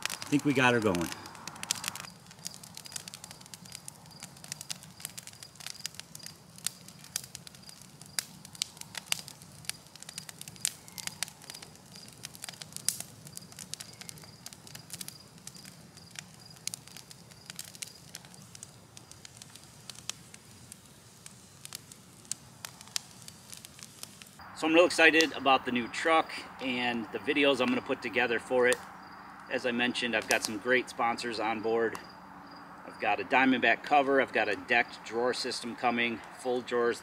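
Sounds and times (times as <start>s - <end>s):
campfire crackling and popping: 0.0s - 37.0s.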